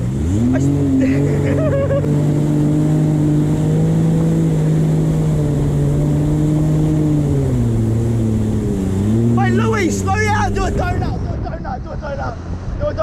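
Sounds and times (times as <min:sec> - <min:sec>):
water spray rushing: 0:00.0 - 0:11.2
jet ski engine at high revs: 0:00.0 - 0:11.4.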